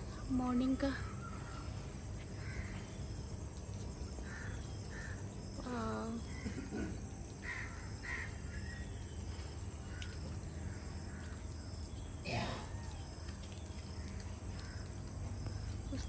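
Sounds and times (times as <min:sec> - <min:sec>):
low background hum: 0:00.0 - 0:16.0
crows cawing: 0:01.1 - 0:03.1, 0:04.2 - 0:05.4, 0:06.3 - 0:09.0, 0:09.8 - 0:11.6, 0:14.6 - 0:15.0.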